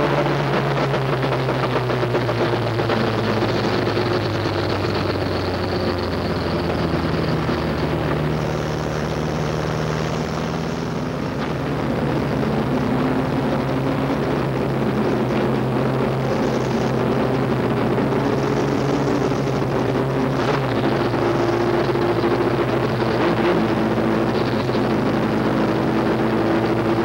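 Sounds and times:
race truck engine running hard: 0:00.0 - 0:27.0.

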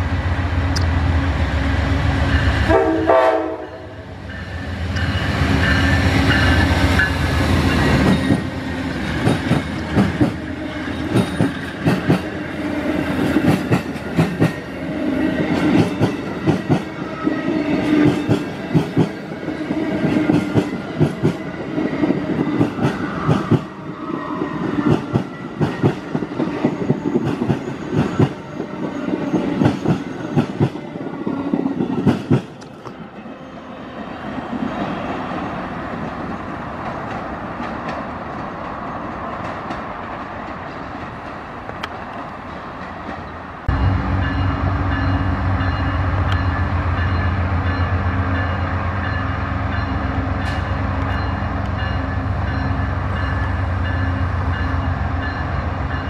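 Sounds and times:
diesel locomotive rumbling: 0:00.0 - 0:56.0
train horn: 0:02.4 - 0:04.1
train wheels clattering on rails: 0:04.9 - 0:12.4, 0:13.0 - 0:14.7, 0:15.5 - 0:17.0, 0:17.8 - 0:23.8, 0:24.4 - 0:33.1, 0:35.9 - 0:56.0.

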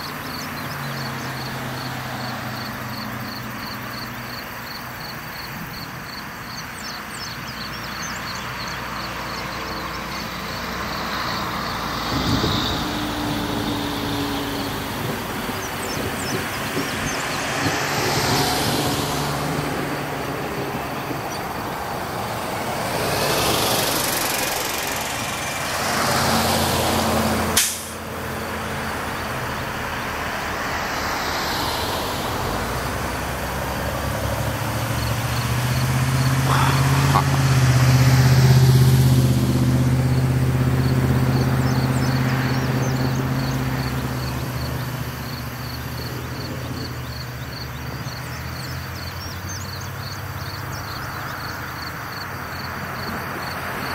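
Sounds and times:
heavy vehicle engine droning: 0:00.0 - 0:53.9
tyres hissing on wet road: 0:00.0 - 0:53.9
sharp click: 0:27.6 - 0:28.0.

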